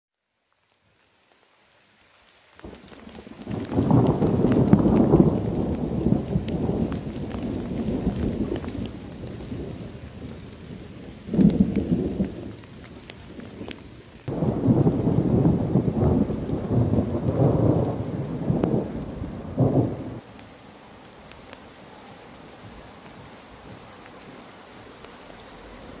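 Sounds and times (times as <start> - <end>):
rain falling in forest: 0.1 - 26.0
sharp ticks of drops or hail: 2.6 - 20.6.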